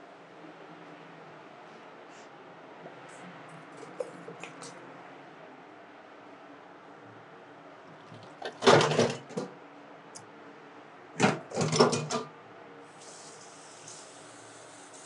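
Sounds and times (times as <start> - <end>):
kitchen clatter: 8.0 - 9.5, 11.2 - 12.3.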